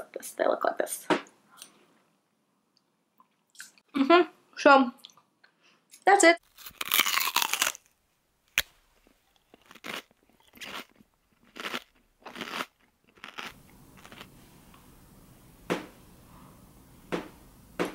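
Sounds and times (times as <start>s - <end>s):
short crunching noises: 6.4s - 14.3s.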